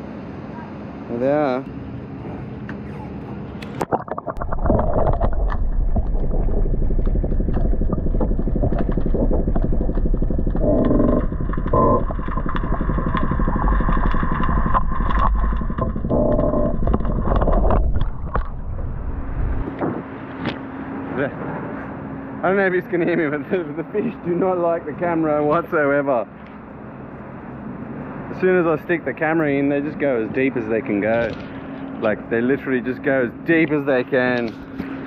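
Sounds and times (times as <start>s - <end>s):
deep rattling underwater rumble: 3.8s - 20.1s.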